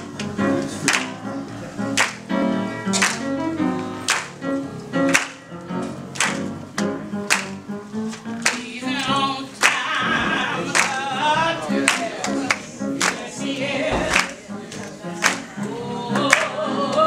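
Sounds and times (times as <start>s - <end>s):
choir clapping in unison: 0.0s - 2.3s, 2.9s - 3.4s, 4.0s - 5.4s, 6.2s - 7.7s, 8.4s - 17.0s
gospel choir singing: 0.0s - 3.6s, 8.5s - 17.0s
held instrumental chords: 0.0s - 16.9s.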